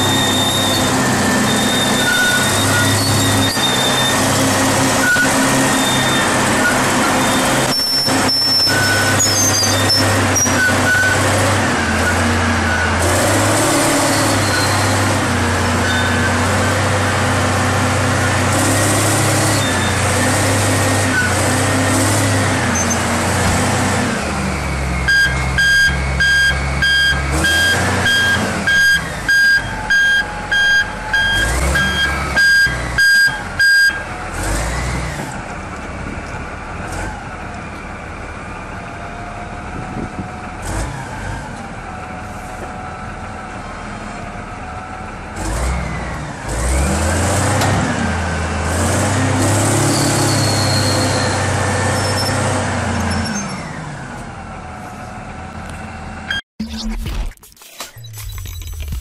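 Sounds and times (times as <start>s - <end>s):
reversing alarm beeping: 0.0s - 4.2s, 5.0s - 11.3s, 24.8s - 34.1s
diesel engine running: 0.0s - 59.0s.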